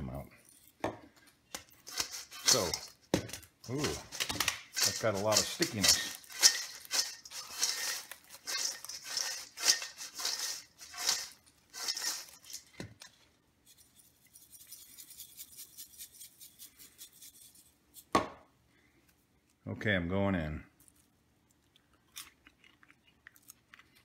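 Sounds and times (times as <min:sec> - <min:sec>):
popcorn rustling in metal bowl: 0:00.0 - 0:18.2.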